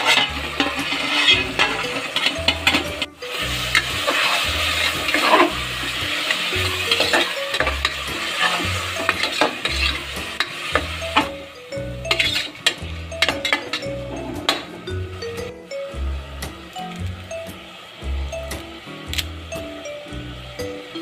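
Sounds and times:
metal ladle scraping pot: 0:00.0 - 0:11.3, 0:12.0 - 0:14.9
background music with beat: 0:00.0 - 0:21.0
vegetables sizzling in oil: 0:00.0 - 0:21.0.

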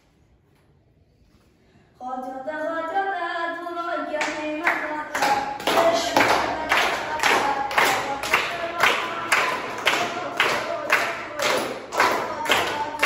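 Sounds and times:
person singing: 0:02.0 - 0:13.0
children clapping along: 0:04.2 - 0:13.0.

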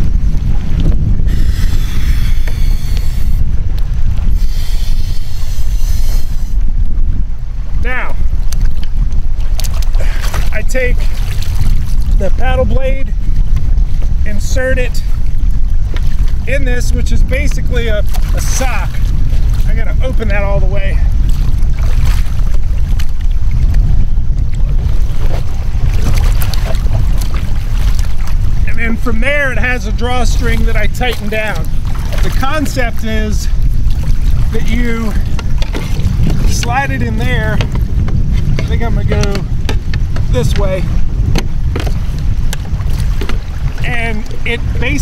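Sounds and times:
water lapping and splashing: 0:00.0 - 0:45.0
wind rumbling on microphone: 0:00.0 - 0:45.0
breathy puffs blowing into valve: 0:01.2 - 0:03.4, 0:04.3 - 0:06.6.

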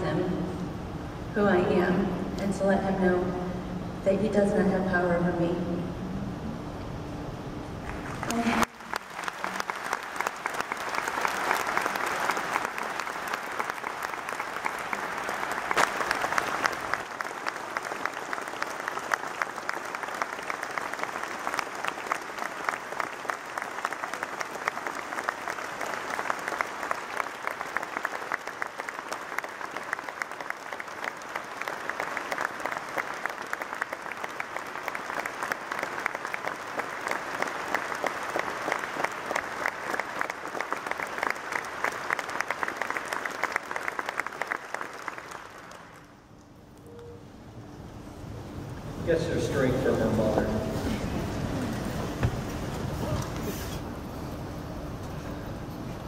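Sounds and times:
audience applauding: 0:07.8 - 0:47.2.

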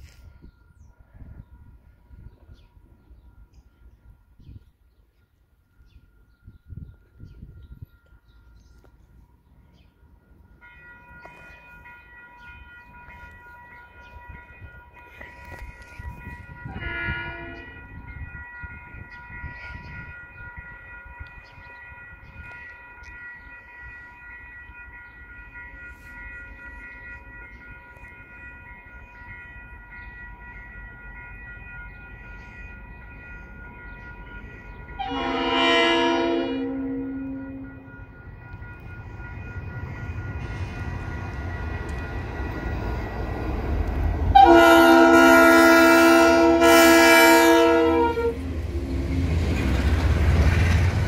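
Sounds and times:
locomotive horn blast: 0:16.7 - 0:17.8, 0:35.0 - 0:37.7, 0:44.3 - 0:49.1
diesel locomotive rumble: 0:25.4 - 0:51.0.

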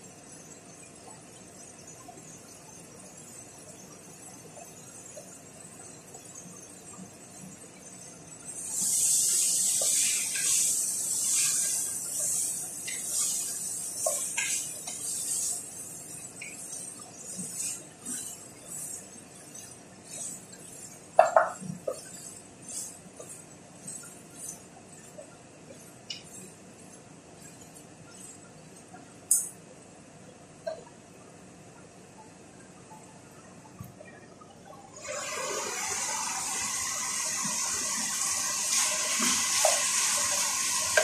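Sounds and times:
food sizzling in a pot: 0:08.5 - 0:28.4, 0:35.0 - 0:41.0
wooden spoon scraping a pot: 0:08.8 - 0:28.9.

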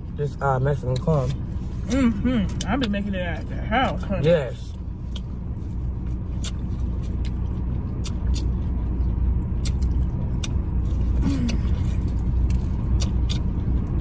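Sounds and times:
car engine idling: 0:00.0 - 0:14.0
chewing corn on the cob: 0:04.7 - 0:14.0.

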